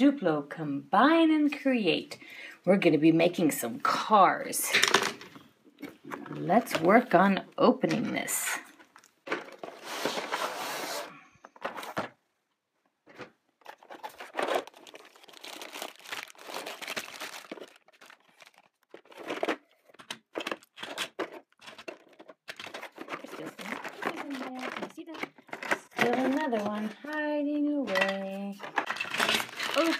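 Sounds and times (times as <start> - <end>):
plastic bags crinkling: 13.1 - 29.9.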